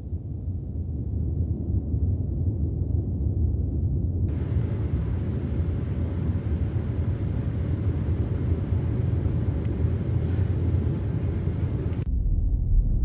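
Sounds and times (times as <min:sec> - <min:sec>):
deep dull rumble: 0:00.0 - 0:13.0
low rumbling drone: 0:04.0 - 0:13.0.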